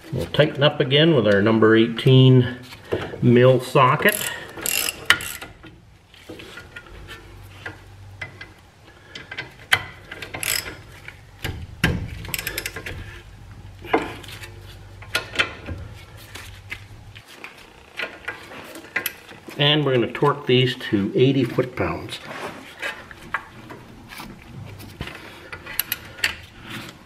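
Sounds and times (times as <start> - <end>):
hand ratchet clicking: 4.0 - 5.7, 9.1 - 13.1
metallic knocks: 11.4 - 13.1.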